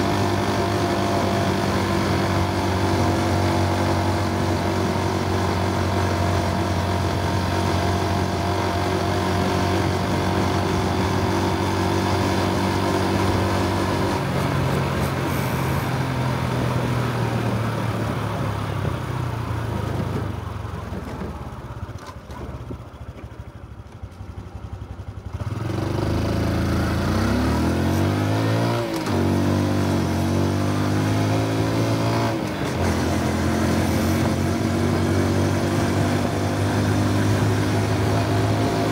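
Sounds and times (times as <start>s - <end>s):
motorcycle engine running: 0.0s - 38.9s.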